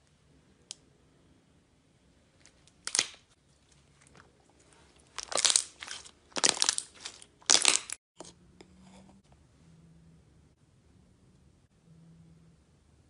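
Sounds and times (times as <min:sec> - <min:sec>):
slime crackling and popping: 0:02.8 - 0:03.2, 0:05.1 - 0:08.0.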